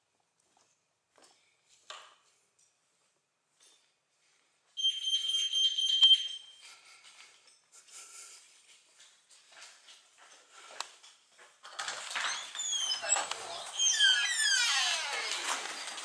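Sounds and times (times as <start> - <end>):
shrill electronic alarm tone: 4.8 - 6.5.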